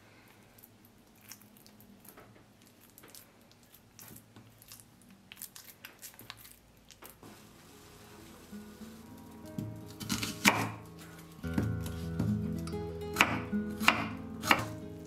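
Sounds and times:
wet squishing of mashed potato: 0:00.4 - 0:07.2.

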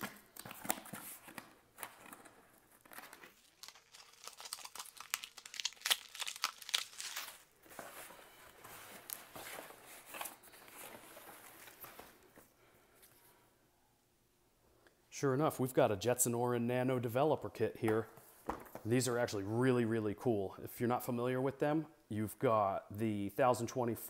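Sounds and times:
packing tape ripping: 0:02.8 - 0:07.5.

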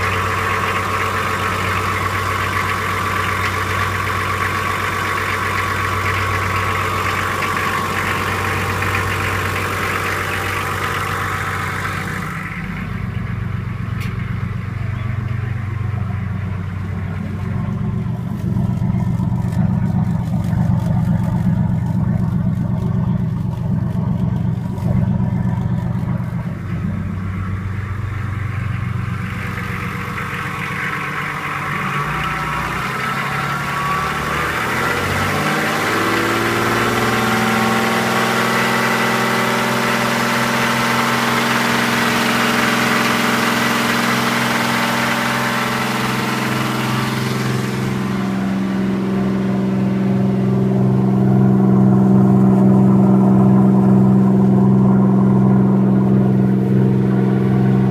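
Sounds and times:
thin steady whine: 0:00.0 - 0:36.3
diesel engine running: 0:00.0 - 0:57.9
engine mechanical clatter: 0:00.0 - 0:57.9.

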